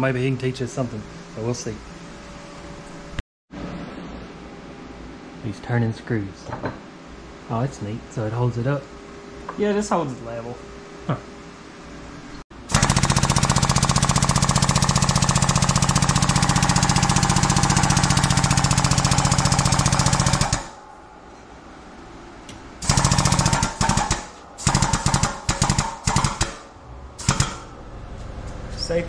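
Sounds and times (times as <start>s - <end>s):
air pump chattering: 12.7s - 20.8s, 22.8s - 27.7s.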